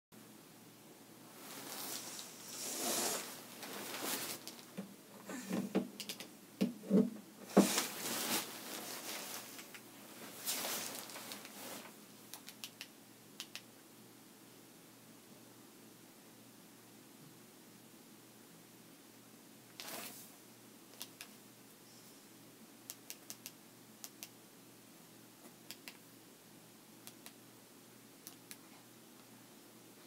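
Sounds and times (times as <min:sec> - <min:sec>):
rustling handling noise: 0:01.3 - 0:05.8, 0:07.4 - 0:12.0.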